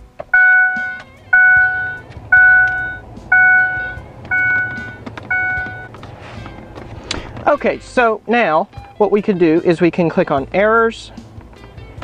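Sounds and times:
dashboard warning chime: 0.3 - 6.0.

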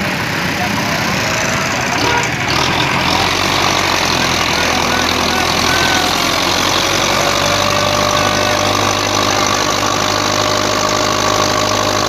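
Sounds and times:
tractor engine idling: 0.0 - 12.0.

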